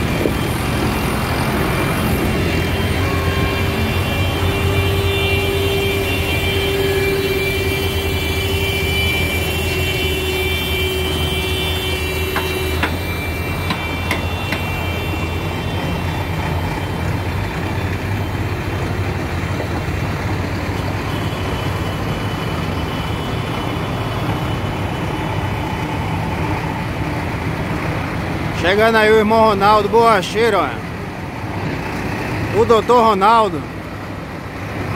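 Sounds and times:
held tone: 0:00.0 - 0:19.9
vehicle engine humming: 0:00.0 - 0:34.9.

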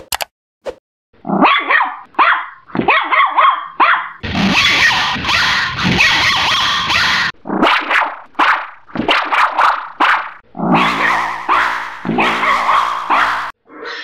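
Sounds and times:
small dog barking: 0:01.4 - 0:04.9, 0:09.5 - 0:13.5
distorted amplified dog barks: 0:01.4 - 0:13.6.

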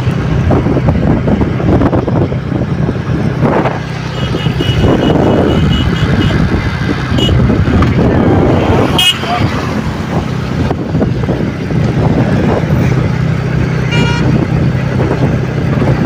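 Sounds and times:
vehicle engine running: 0:00.0 - 0:16.0
wind buffeting microphone: 0:00.0 - 0:16.0.

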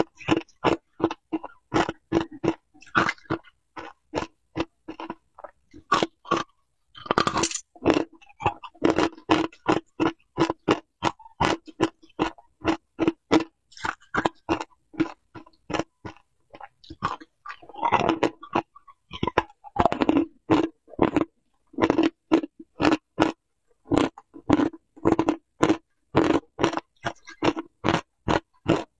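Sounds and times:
ice crunching while chewed: 0:00.0 - 0:28.9.

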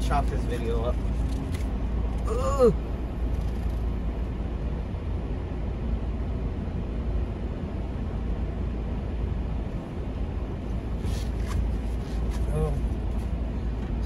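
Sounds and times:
diesel truck engine rumbling: 0:00.0 - 0:14.0.

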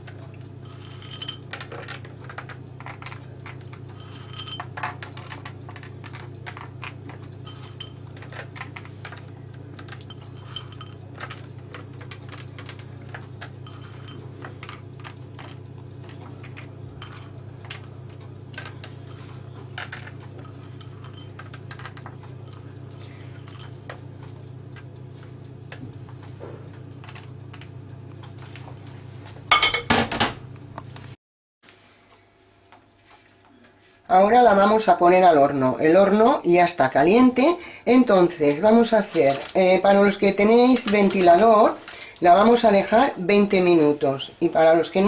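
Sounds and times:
low hum: 0:00.0 - 0:29.4
nuts clicking in ceramic bowl: 0:18.6 - 0:23.0.

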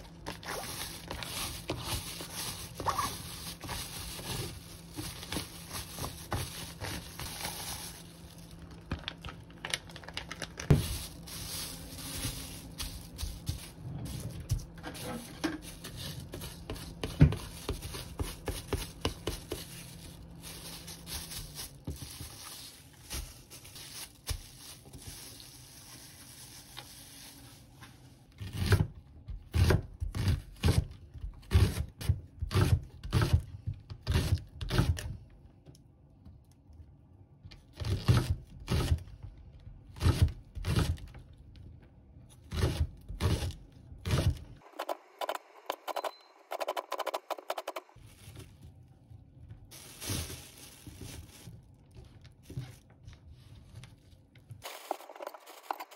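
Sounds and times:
spatula scraping in plastic bag: 0:00.0 - 0:09.3, 0:10.0 - 0:28.7, 0:49.7 - 0:51.7, 0:54.6 - 0:55.9.

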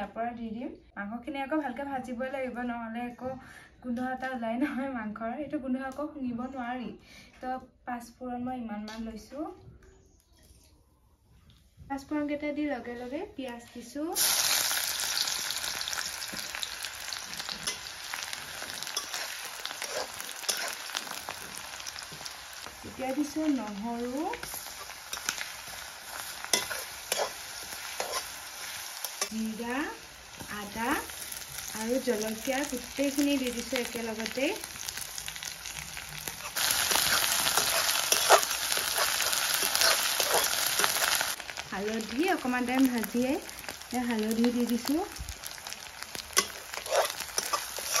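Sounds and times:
onions sizzling in hot oil: 0:13.5 - 0:48.0
metal spatula scraping pan: 0:17.4 - 0:21.5, 0:26.1 - 0:29.4, 0:36.2 - 0:41.2, 0:46.2 - 0:48.0.

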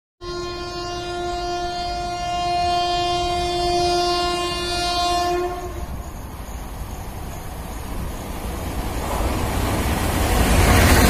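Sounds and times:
train horn long blast: 0:00.2 - 0:06.0
train rumbling: 0:00.2 - 0:11.0.

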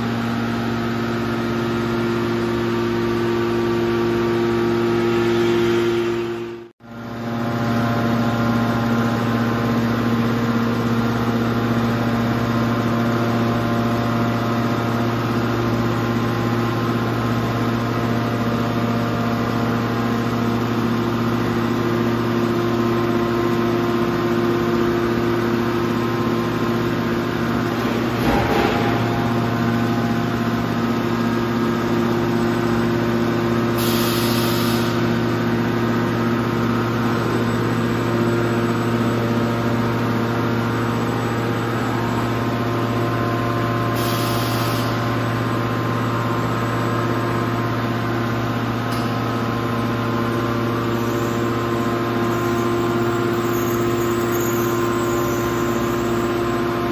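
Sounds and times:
hydraulic baler humming: 0:00.0 - 0:56.9
machine clunk: 0:27.3 - 0:30.8.

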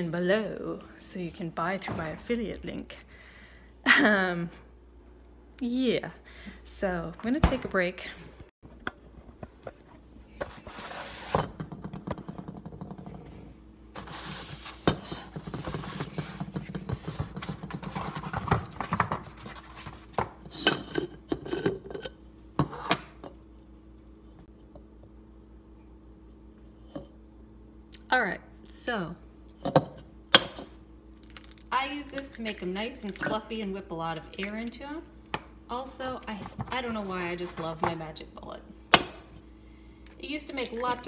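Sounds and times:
faint steady hum: 0:00.0 - 0:41.0
kitchen items clattering on countertop: 0:14.0 - 0:23.3.

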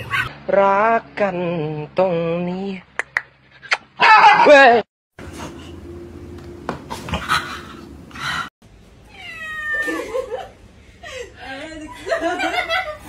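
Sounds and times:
cat meowing: 0:09.1 - 0:10.0.

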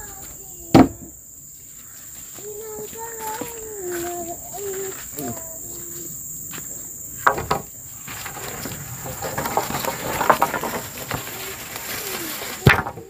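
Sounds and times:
insects shrilling: 0:00.0 - 0:13.0
sharp knocks: 0:07.2 - 0:07.7
rustling and clattering: 0:07.2 - 0:13.0.

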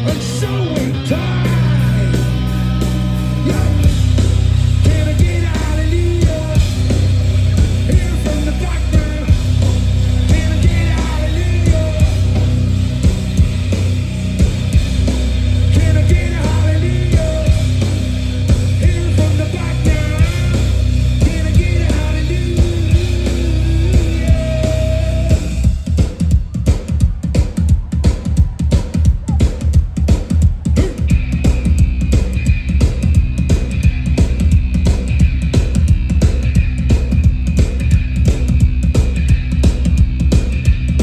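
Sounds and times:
person singing lead vocals: 0:00.0 - 0:12.6, 0:15.6 - 0:25.7
live rock band playing: 0:00.0 - 0:41.0.

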